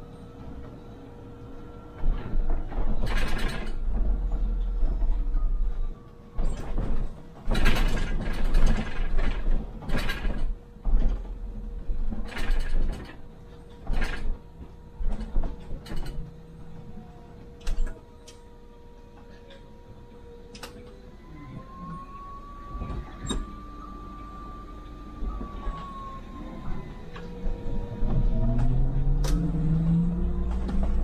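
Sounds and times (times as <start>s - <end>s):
bus knocks and rattles: 0.0s - 18.1s, 25.2s - 31.0s.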